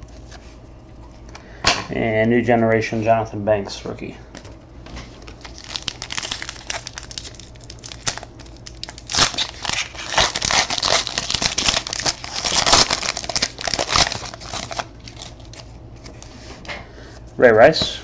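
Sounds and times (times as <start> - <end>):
foil wrapper tearing and crinkling: 5.2 - 16.3.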